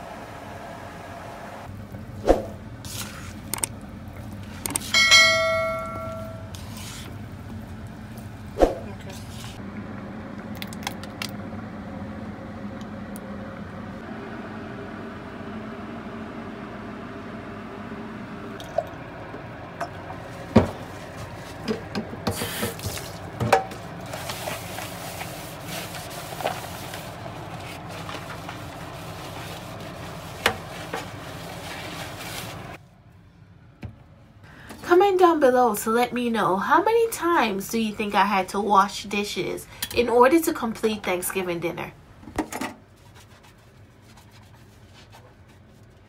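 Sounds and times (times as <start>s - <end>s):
sponge scrubbing and squishing: 24.0s - 32.8s, 42.9s - 46.0s.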